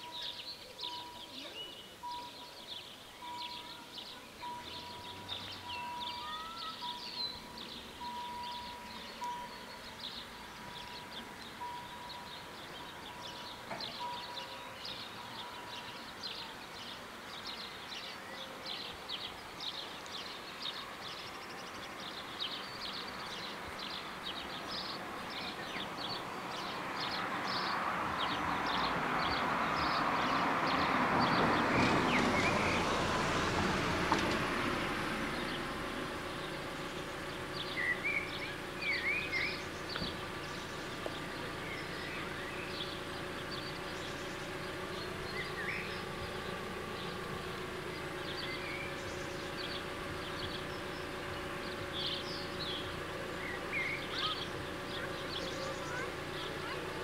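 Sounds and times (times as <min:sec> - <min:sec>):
birds chirping: 0:00.0 - 0:57.0
diesel train approaching: 0:00.0 - 0:57.0
level crossing bell ringing: 0:03.2 - 0:09.6.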